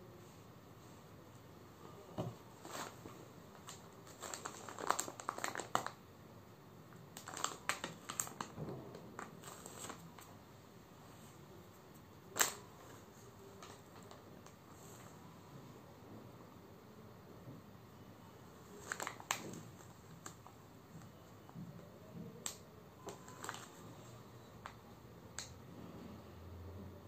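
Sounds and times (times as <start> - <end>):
plastic packaging crinkling: 2.5 - 6.0, 7.1 - 10.3, 12.2 - 14.6, 18.6 - 21.1, 22.4 - 24.8.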